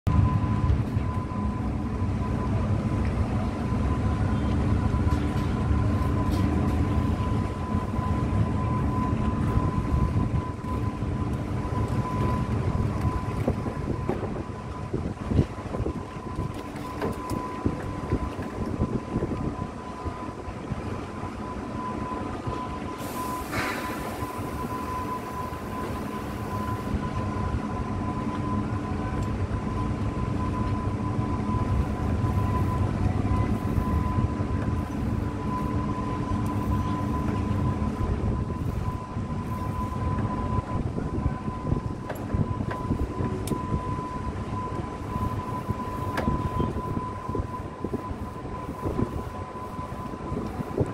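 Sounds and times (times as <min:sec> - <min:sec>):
diesel engines rumbling: 0:00.1 - 0:50.9
thin engine whine: 0:00.1 - 0:50.9
brief hiss: 0:23.0 - 0:24.3.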